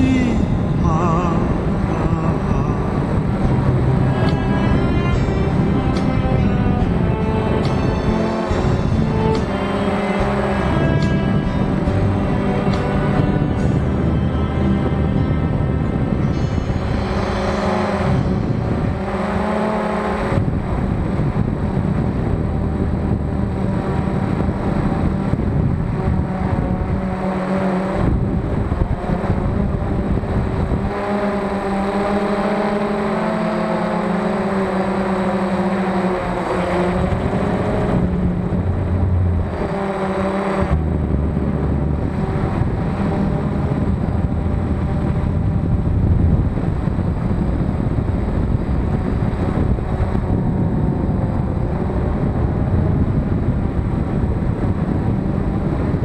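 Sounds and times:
drone propellers whining: 0.0s - 56.0s
wind on microphone: 0.0s - 56.0s.

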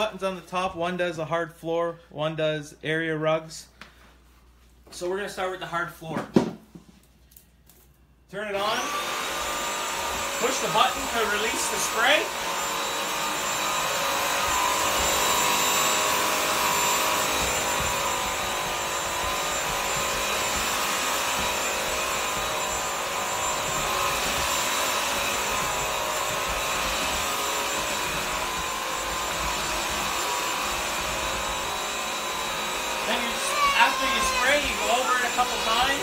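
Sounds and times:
vacuum mop motor whine: 8.5s - 36.0s
rushing suction: 8.9s - 36.0s.

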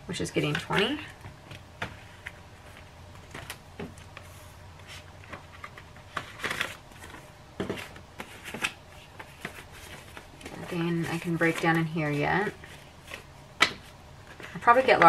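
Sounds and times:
paper bills rustling: 2.0s - 13.3s.

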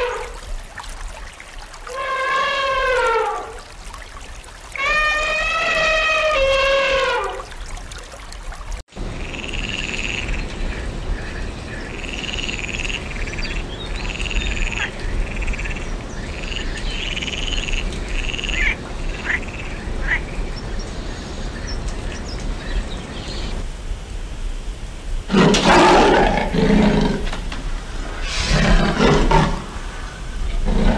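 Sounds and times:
tree frog croaking: 11.9s - 13.3s.

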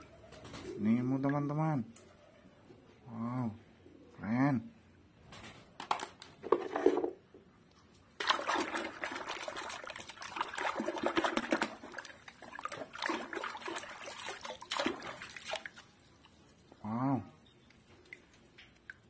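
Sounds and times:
hand sloshing soapy water: 8.2s - 16.8s.

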